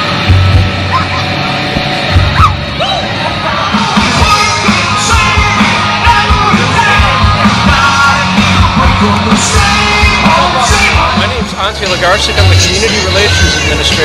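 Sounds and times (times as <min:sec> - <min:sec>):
loud rock music: 0:00.0 - 0:14.0
yelled sung vocal: 0:02.2 - 0:11.8.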